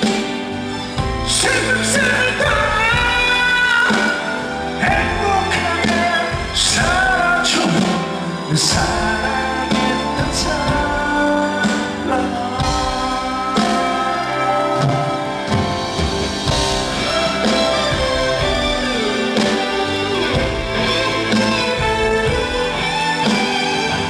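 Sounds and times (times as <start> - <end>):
live band playing: 0.0 - 24.0
man singing into microphone: 1.3 - 15.5.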